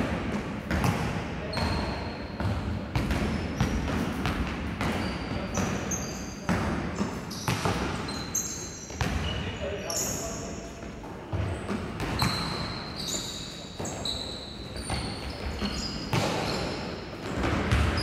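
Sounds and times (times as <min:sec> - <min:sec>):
sneakers squeaking on court: 0:00.7 - 0:18.0
basketball bouncing on hardwood floor: 0:17.3 - 0:18.0.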